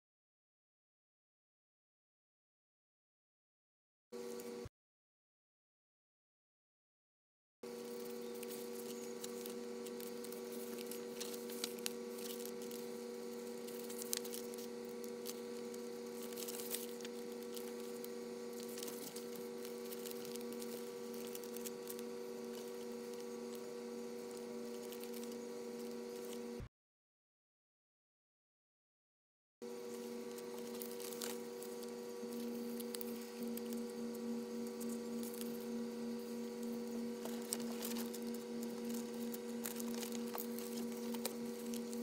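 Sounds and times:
steady hum of held tones: 7.6s - 26.7s, 29.6s - 42.0s
paper pages rustling: 7.8s - 26.6s, 29.9s - 35.7s, 36.3s - 42.0s.

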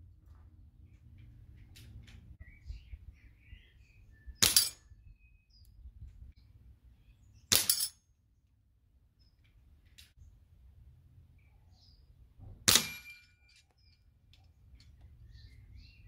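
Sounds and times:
pellets clanging on steel target: 4.4s - 4.8s, 7.5s - 8.0s, 12.7s - 13.7s.

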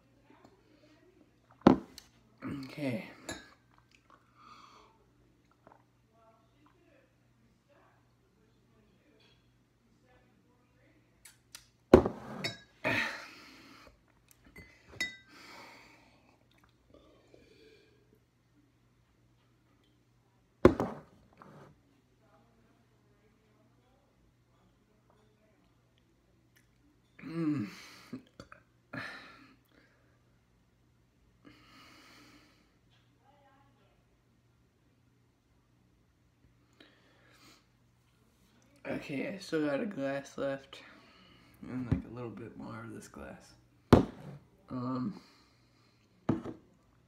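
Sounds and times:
person burping: 12.8s - 13.3s, 27.2s - 29.2s.

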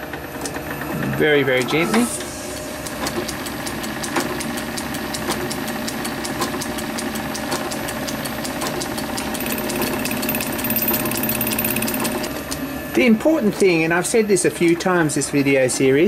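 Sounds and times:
regular mechanical ticking: 2.8s - 12.3s.

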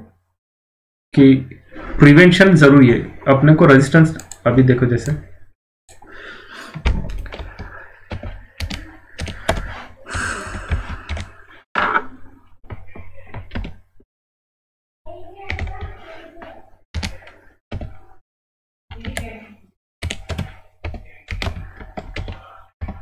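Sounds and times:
computer keyboard typing: 7.0s - 11.4s, 18.9s - 19.4s, 20.0s - 23.0s.

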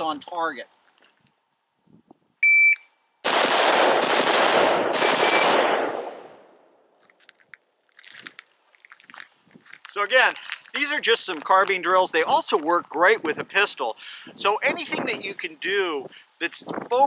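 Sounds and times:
shot timer beep: 2.4s - 2.9s
rifle firing rapid shots: 3.2s - 6.3s.

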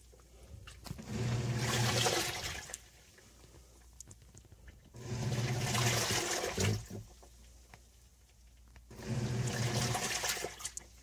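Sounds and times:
washing machine motor hum: 0.9s - 2.8s, 4.9s - 7.1s, 8.9s - 10.7s
water churning in tub: 1.0s - 2.8s, 5.0s - 7.1s, 8.9s - 10.8s.

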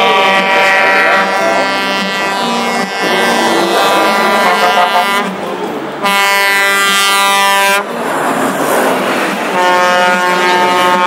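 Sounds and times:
truck air horn blast: 0.0s - 5.4s, 6.0s - 8.0s, 9.5s - 11.0s
diesel truck engine passing: 0.0s - 11.0s.

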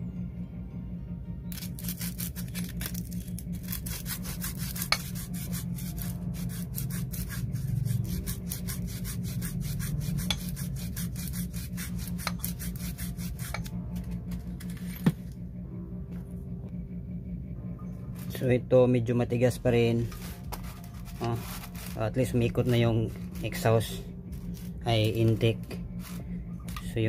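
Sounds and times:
sandpaper rubbing on metal: 1.7s - 13.7s, 20.0s - 27.0s.

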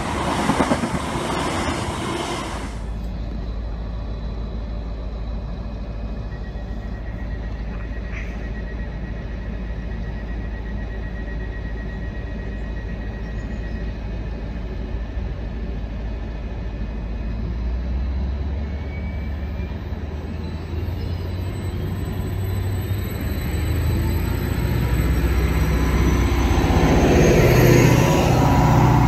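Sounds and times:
diesel train engine rumble: 0.0s - 29.0s.

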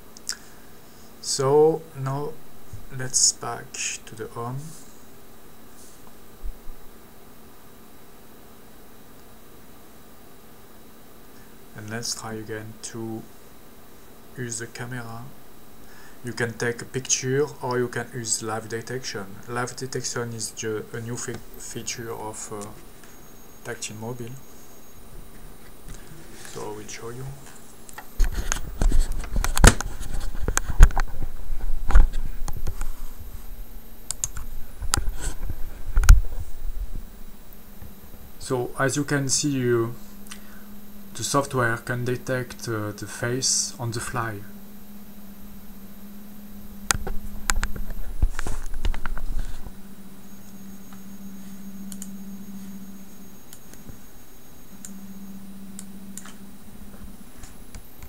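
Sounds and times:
low steady buzz: 0.0s - 58.0s
handling noise on device: 22.5s - 41.2s, 44.5s - 58.0s.

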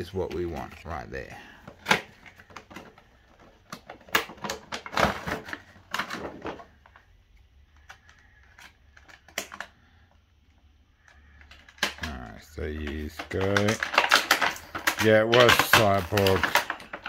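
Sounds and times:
cardboard and plastic box handled: 0.0s - 9.7s, 11.4s - 17.0s.

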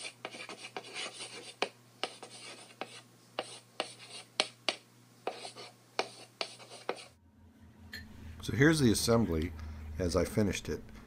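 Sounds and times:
chalk tapping: 0.0s - 7.1s
chalk scratching on blackboard: 0.0s - 7.2s
faint low hum: 0.2s - 11.0s.

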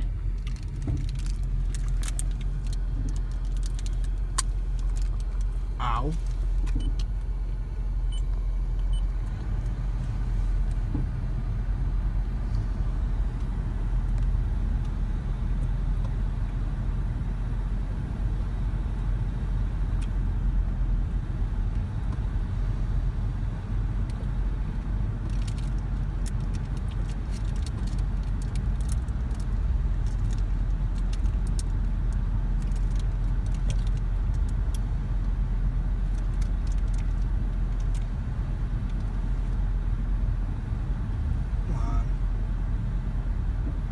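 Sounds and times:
car idling low rumble: 0.0s - 43.9s.

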